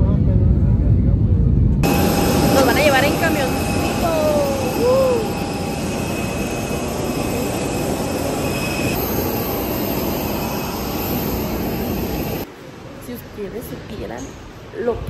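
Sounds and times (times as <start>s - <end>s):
jet engines running: 0.2s - 12.5s
faint high whines: 1.8s - 12.5s.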